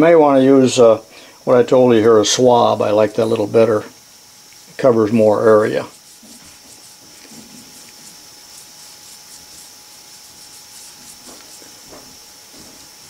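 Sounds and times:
faint steady hiss: 0.0s - 13.0s
swab rubbing on metal: 4.4s - 13.0s.

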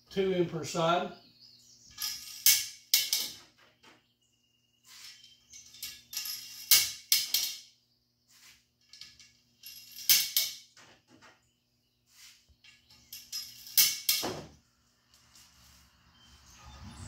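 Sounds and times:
metal nuts clinking on aluminium: 1.9s - 3.9s, 4.9s - 7.7s, 8.8s - 11.0s, 12.6s - 14.5s.

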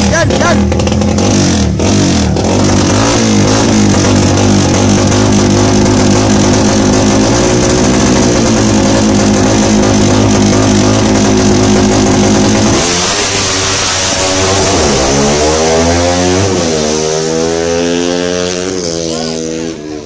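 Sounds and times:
motorcycle engine revving up: 0.0s - 20.0s
motorcycle engine high idle: 0.5s - 2.9s, 3.7s - 12.8s.

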